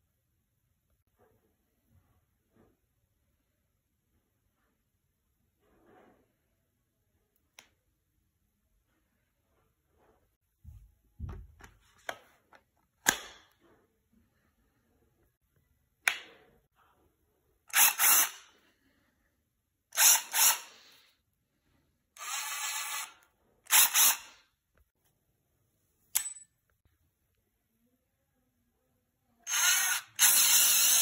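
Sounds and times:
tool handling knocks and clicks: 0:10.6 - 0:13.8
impact driver motor whirring: 0:22.2 - 0:24.3, 0:29.5 - 0:31.0.

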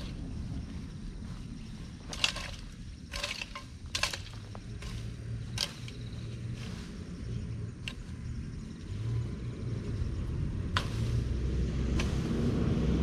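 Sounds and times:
low steady rumble: 0:00.0 - 0:13.0
hoe chopping and scraping soil: 0:01.8 - 0:09.3, 0:10.4 - 0:13.0.

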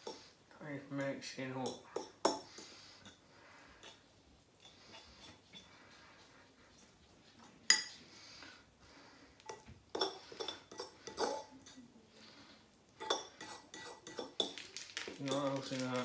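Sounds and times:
fork stirring noodles in bowl: 0:01.7 - 0:08.4, 0:09.4 - 0:11.8, 0:13.0 - 0:14.7
fork clinking against bowl: 0:13.0 - 0:14.6.

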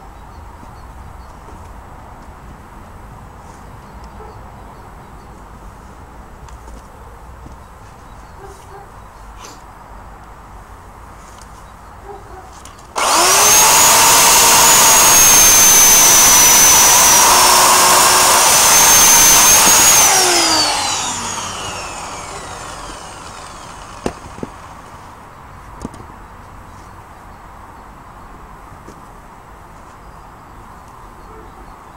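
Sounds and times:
chainsaw cutting through log: 0:12.9 - 0:24.9.

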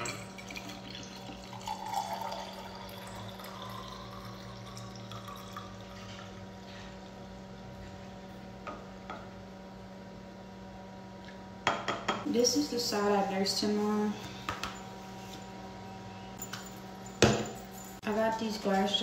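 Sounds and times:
milk trickling into glass jar: 0:00.3 - 0:06.4.

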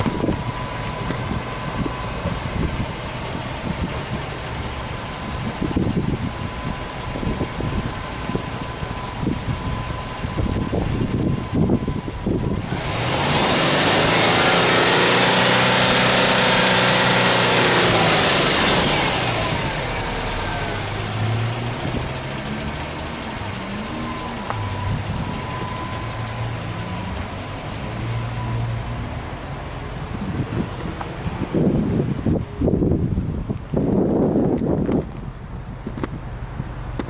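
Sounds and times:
car engine idling: 0:00.0 - 0:37.0
car engine revving: 0:10.4 - 0:29.4.

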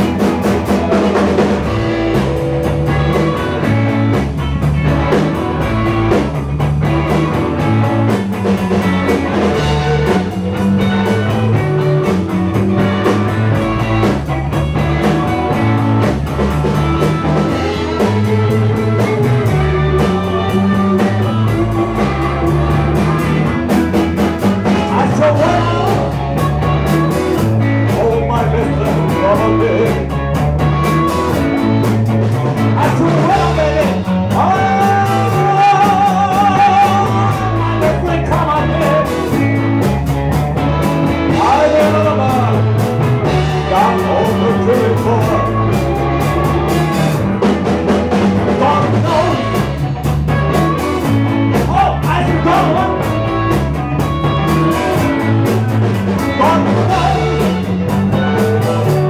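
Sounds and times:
blues-rock band playing: 0:00.0 - 0:59.0
person singing: 0:08.7 - 0:16.0, 0:16.7 - 0:31.8, 0:32.6 - 0:39.9, 0:40.6 - 0:47.2, 0:48.4 - 0:59.0.

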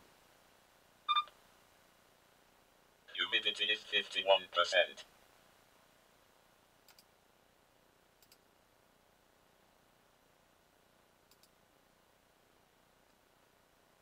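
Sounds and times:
faint computer mouse clicks: 0:06.8 - 0:07.1, 0:08.2 - 0:08.5, 0:11.3 - 0:11.6.

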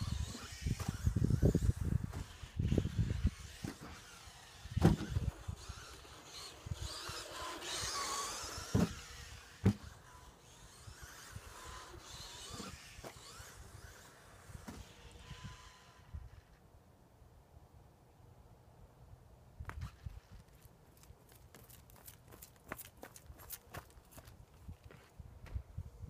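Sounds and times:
electric toy car motor whine: 0:00.0 - 0:16.7.

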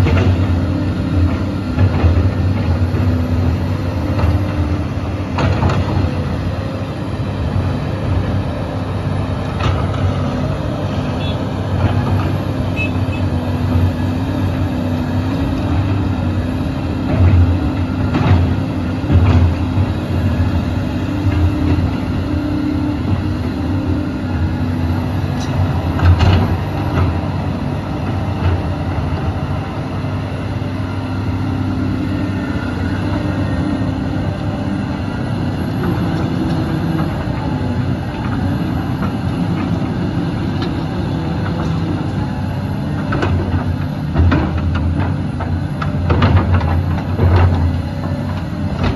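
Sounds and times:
excavator diesel engine running: 0:00.0 - 0:48.9.

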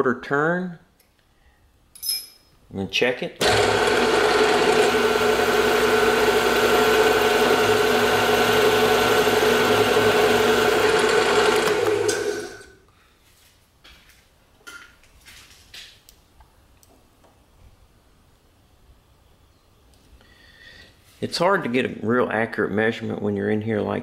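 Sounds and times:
milling machine whine: 0:03.4 - 0:12.8.

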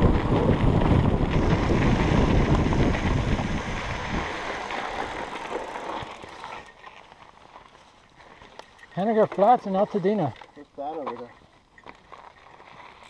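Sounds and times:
wind buffeting microphone: 0:00.0 - 0:05.4
bike tyres rumbling on rock: 0:00.0 - 0:07.8
bike rattling: 0:00.0 - 0:13.0.

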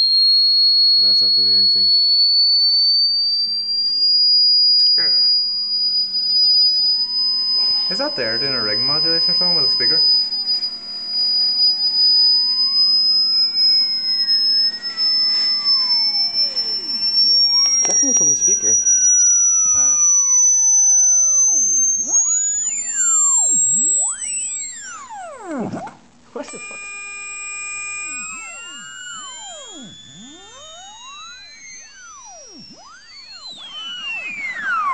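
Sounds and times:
high steady test tone whine: 0:00.0 - 0:34.9
gliding electronic tones: 0:07.2 - 0:34.9.

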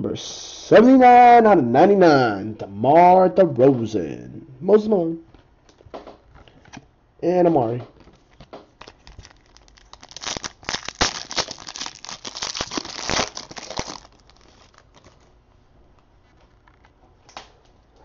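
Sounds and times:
foil wrapper crinkling: 0:08.2 - 0:15.4.

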